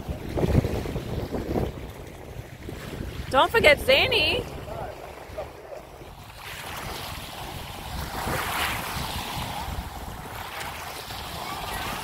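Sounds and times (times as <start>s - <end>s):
small waves lapping on shore: 0.0s - 12.0s
wind rumbling on microphone: 0.0s - 12.0s.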